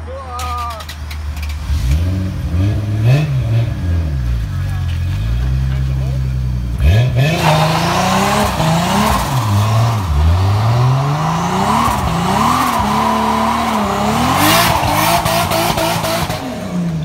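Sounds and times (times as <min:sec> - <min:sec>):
engine revving: 0:01.4 - 0:17.0
tyre squealing on pavement: 0:06.8 - 0:17.0.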